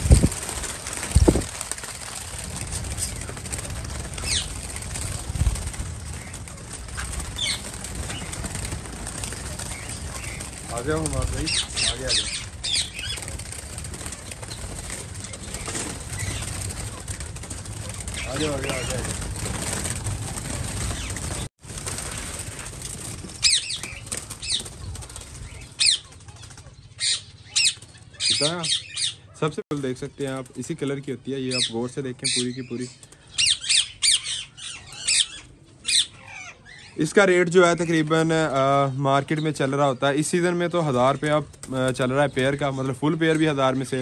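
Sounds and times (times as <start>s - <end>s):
doves flapping wings: 0.0s - 28.8s, 29.8s - 36.0s, 37.2s - 44.0s
high-pitched bird calls: 6.2s - 17.3s, 23.4s - 29.4s, 31.5s - 37.1s.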